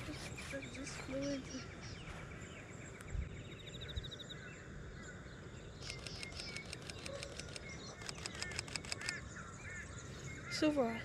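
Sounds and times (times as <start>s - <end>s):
outdoor background noise: 0.0s - 11.0s
small birds chirping: 0.0s - 11.0s
camera shutter clicking: 5.8s - 9.2s.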